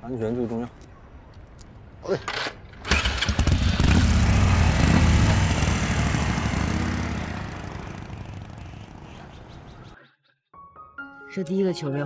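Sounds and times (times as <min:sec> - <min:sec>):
motorcycle engine revving: 0:02.9 - 0:09.9.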